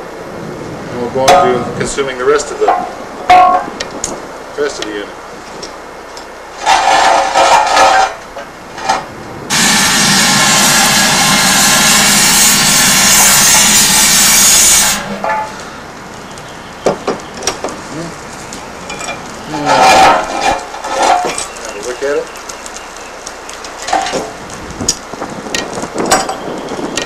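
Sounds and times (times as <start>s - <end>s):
knocks and scrapes: 5.4s - 15.7s, 18.9s - 21.6s, 23.7s - 27.0s
loud rushing hiss: 9.4s - 19.7s.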